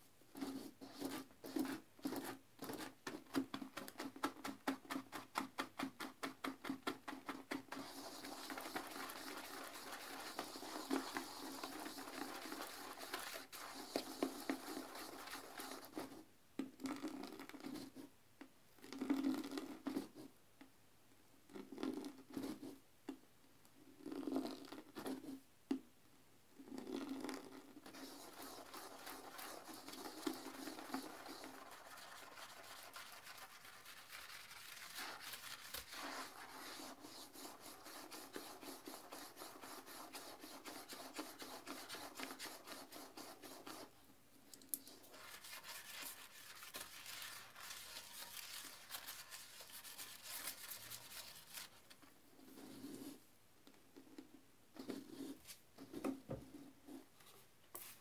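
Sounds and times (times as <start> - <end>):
toilet brush scrubbing bowl: 0.3 - 16.2, 26.9 - 44.0, 44.7 - 53.2.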